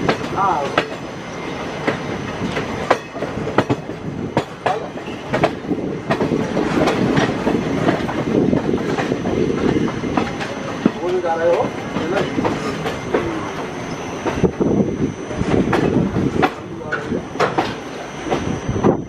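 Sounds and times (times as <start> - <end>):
train wheels clattering over rail joints: 0.0 - 14.6, 15.4 - 19.0
train rolling rumble: 0.0 - 19.0.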